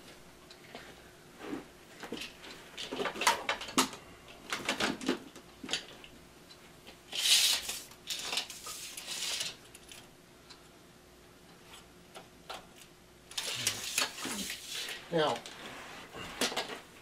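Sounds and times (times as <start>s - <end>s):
tape measure pulled out: 7.1s - 9.6s.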